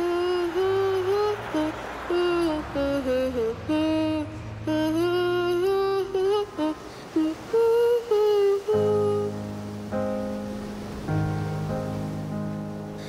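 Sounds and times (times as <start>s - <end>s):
woman humming: 0.0s - 9.4s
low sustained instrumental chord: 8.6s - 13.0s.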